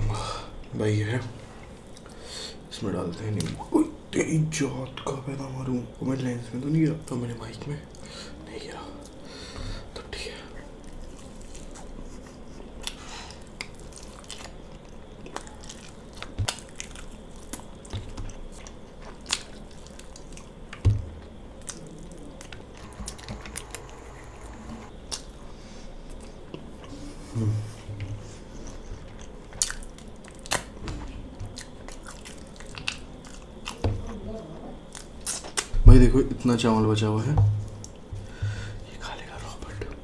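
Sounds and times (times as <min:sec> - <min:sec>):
wet chewing and mouth smacks: 0:10.8 - 0:23.9, 0:24.8 - 0:25.4, 0:28.0 - 0:33.8, 0:34.8 - 0:35.7.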